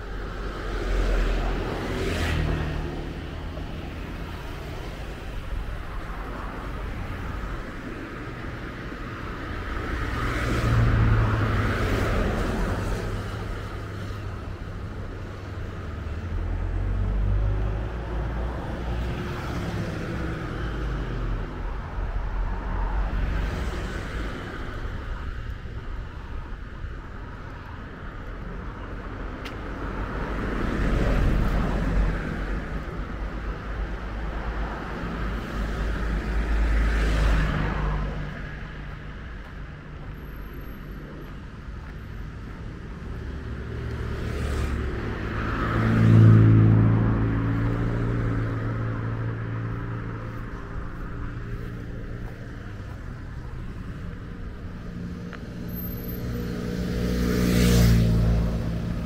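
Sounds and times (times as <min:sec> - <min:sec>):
low traffic rumble: 0:00.0 - 0:59.0
vehicles passing: 0:00.0 - 0:59.0.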